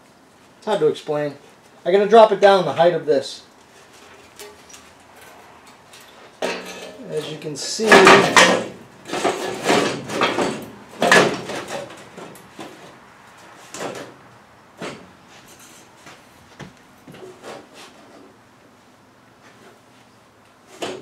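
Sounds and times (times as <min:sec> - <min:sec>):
rustles: 0:02.7 - 0:21.0
scraping as objects are moved: 0:03.6 - 0:14.2, 0:14.8 - 0:21.0.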